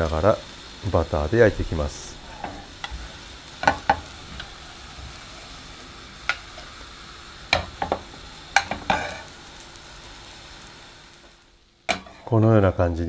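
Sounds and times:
potato cakes sizzling in butter: 0.0s - 12.3s
metal knife scraping a pan: 8.6s - 9.3s, 11.9s - 12.3s.

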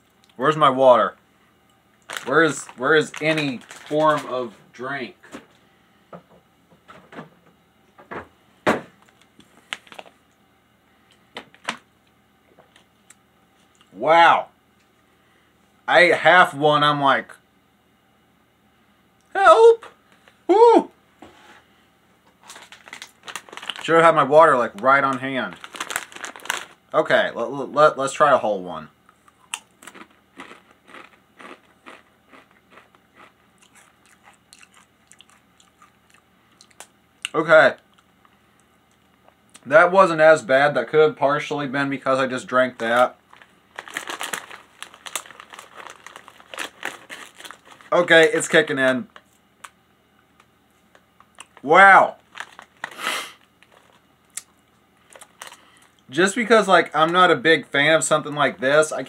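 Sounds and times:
plastic bottle crackling: 2.1s - 4.3s, 22.4s - 23.9s, 25.5s - 26.8s, 43.3s - 48.4s, 52.2s - 53.0s
chewing crunches: 29.1s - 39.6s
chip bitten with crunch: 29.2s - 38.1s.

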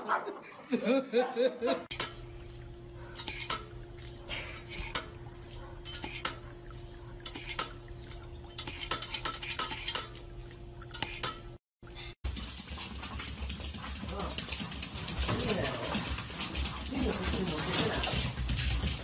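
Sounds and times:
dog lapping water: 12.3s - 19.0s.

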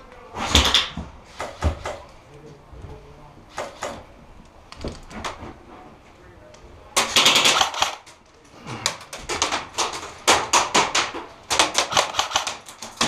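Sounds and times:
airsoft gunfire bursts: 7.0s - 8.0s, 10.2s - 12.7s.

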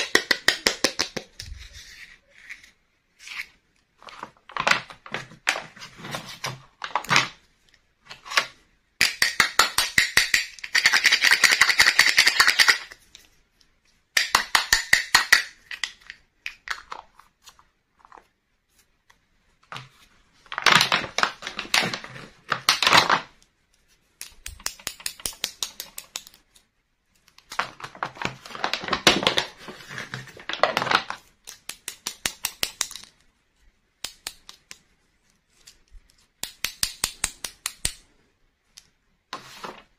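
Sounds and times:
plastic toy pieces clicking: 9.0s - 13.0s, 24.2s - 26.4s, 31.4s - 33.2s.

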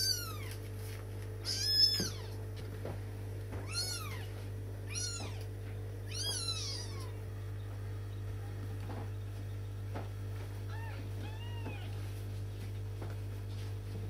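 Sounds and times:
kittens mewing: 0.0s - 0.6s, 1.4s - 2.5s, 3.5s - 7.3s, 10.7s - 12.1s
steady low hum: 0.0s - 14.0s.

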